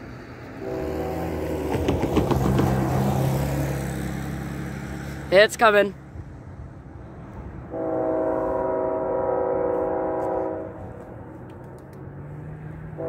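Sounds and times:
locomotive air horn: 0.6s - 1.8s, 7.7s - 11.0s.

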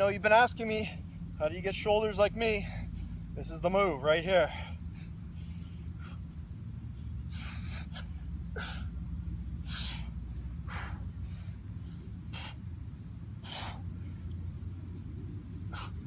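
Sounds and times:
steady low rumble: 0.0s - 16.0s
man breathing forcefully: 4.4s - 14.4s, 15.5s - 16.0s.

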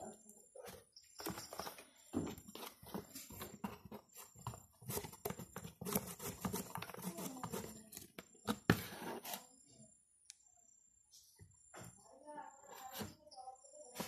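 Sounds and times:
card rustling and scraping: 1.1s - 9.6s.

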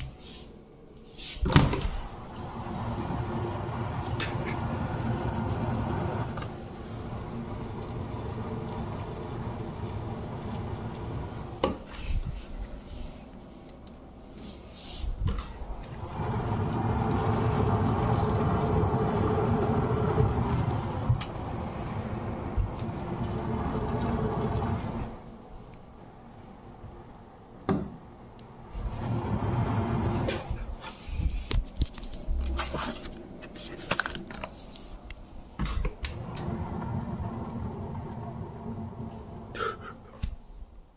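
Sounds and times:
water boiling with bubbling rumble: 1.9s - 13.2s, 15.6s - 26.1s, 28.7s - 30.8s, 35.6s - 39.8s.

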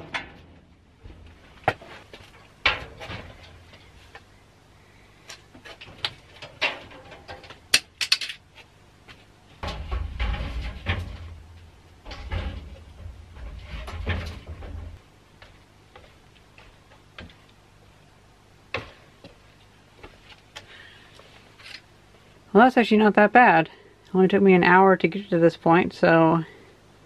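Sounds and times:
sheet-metal frame knocking and rattling: 2.6s - 3.8s, 5.7s - 8.3s, 9.6s - 15.0s.

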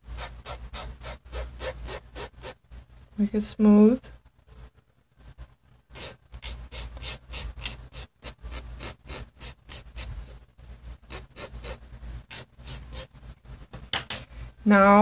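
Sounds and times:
needle file scraping wire: 5.9s - 10.4s, 11.0s - 13.1s.

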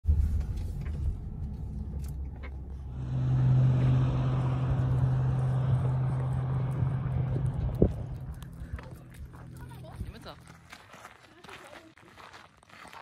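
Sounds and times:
car engine hum: 0.1s - 10.8s
road noise hiss: 2.6s - 10.2s.

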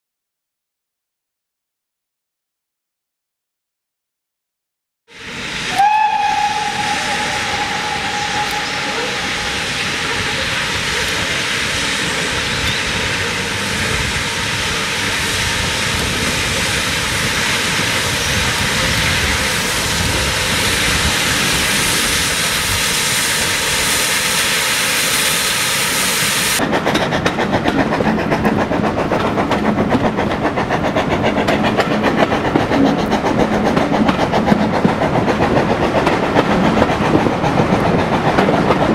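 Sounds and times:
steam locomotive whistle: 5.2s - 12.8s
steam hissing: 5.2s - 26.8s
train wheels clicking over rail joints: 26.6s - 38.9s.

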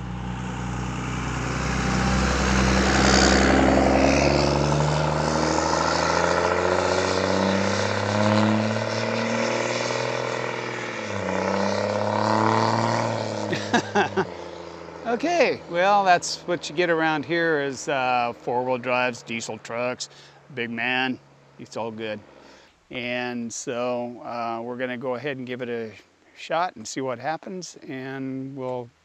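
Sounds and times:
truck engine driving past: 0.0s - 22.7s
passing traffic: 0.0s - 22.9s.

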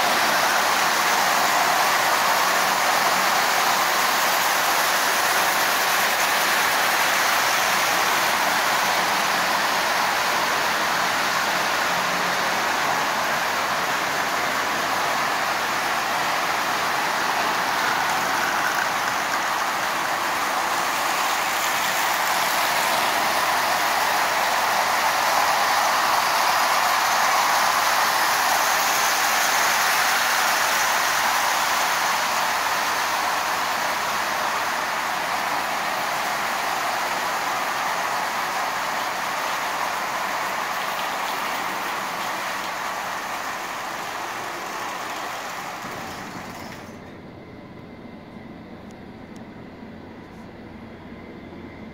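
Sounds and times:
toy train wheels on metal rails: 0.0s - 47.0s.

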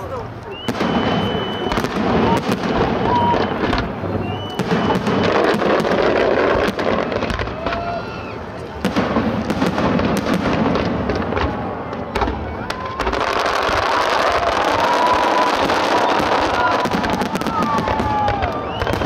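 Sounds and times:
fireworks crackling: 0.0s - 19.0s
firework whistles: 0.4s - 8.7s, 12.6s - 19.0s.

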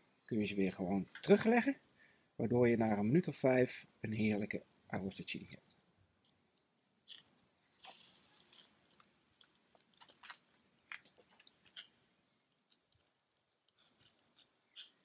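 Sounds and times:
fat dripping on coals hiss: 0.4s - 15.0s
meat sizzling over charcoal: 6.2s - 15.0s.

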